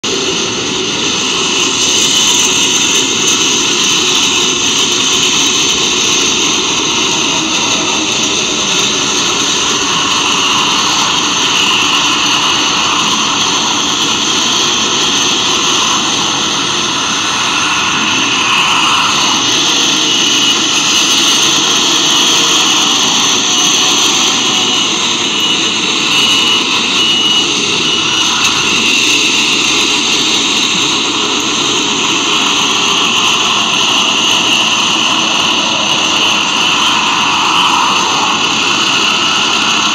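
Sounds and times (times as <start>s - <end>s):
drone propellers whirring: 0.0s - 39.9s.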